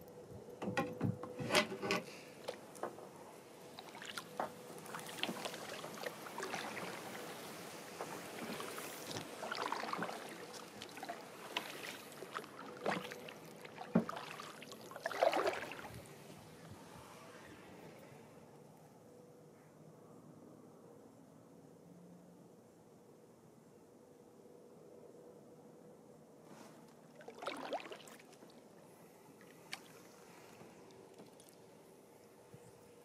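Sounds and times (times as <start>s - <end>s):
water trickling: 3.6s - 16.2s, 27.2s - 28.7s
reeds scraping kayak hull: 3.8s - 16.0s.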